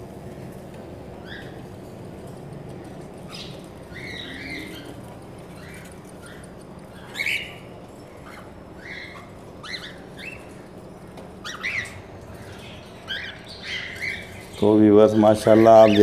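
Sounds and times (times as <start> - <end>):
cockatiels chirping: 1.2 - 1.6, 3.3 - 10.7, 11.4 - 16.0.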